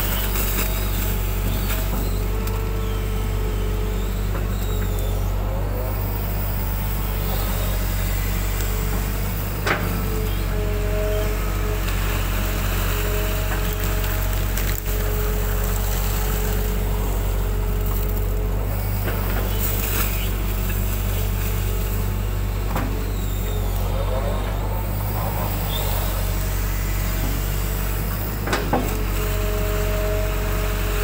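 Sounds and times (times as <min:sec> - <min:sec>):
excavator diesel engine running: 0:00.0 - 0:31.0.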